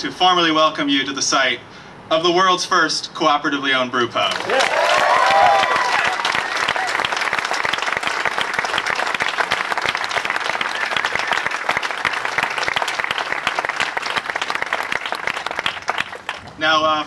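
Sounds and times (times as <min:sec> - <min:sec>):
crowd applauding: 0:04.3 - 0:16.6.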